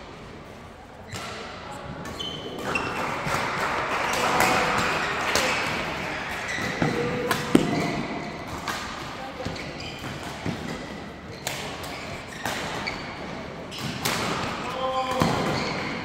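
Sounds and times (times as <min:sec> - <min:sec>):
shoes squeaking on court: 0:01.0 - 0:02.9, 0:09.4 - 0:14.0, 0:14.7 - 0:16.0
racket hitting shuttlecock: 0:02.6 - 0:13.0, 0:13.7 - 0:15.9.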